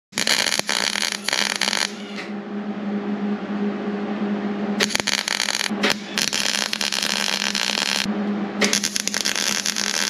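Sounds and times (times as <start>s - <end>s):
welder arc crackling: 0.1s - 2.0s, 4.8s - 10.0s
steady hum: 0.1s - 10.0s.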